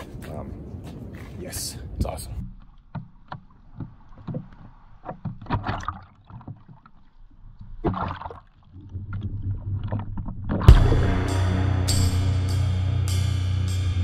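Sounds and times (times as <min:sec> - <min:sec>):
water splashing and sloshing: 0:02.4 - 0:10.7
low rumble: 0:10.7 - 0:14.0
sharp thump: 0:10.7 - 0:14.0.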